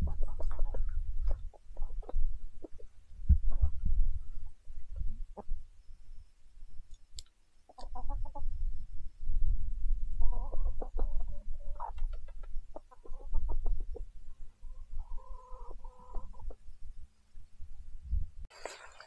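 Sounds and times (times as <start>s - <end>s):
chickens clucking: 0.0s - 5.6s, 7.7s - 8.6s, 10.2s - 16.7s.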